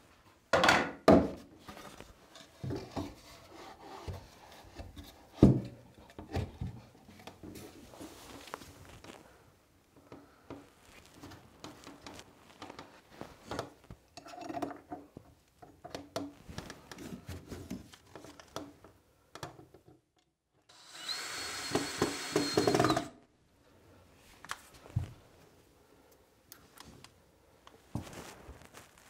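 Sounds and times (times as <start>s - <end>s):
cordless drill whining: 20.7s - 23.1s.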